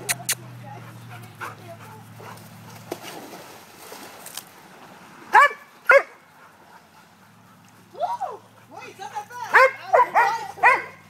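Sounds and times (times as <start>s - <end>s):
water splashing in a pool: 2.0s - 8.6s
dog barking: 5.3s - 6.2s, 9.5s - 11.0s.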